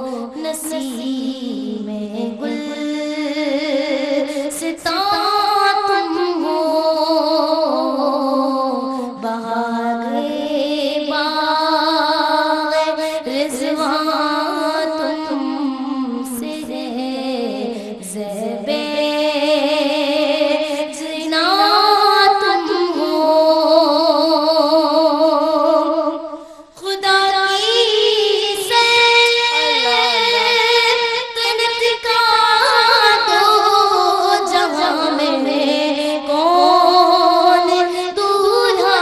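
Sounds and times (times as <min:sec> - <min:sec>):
woman singing into a microphone: 0:00.0 - 0:39.0.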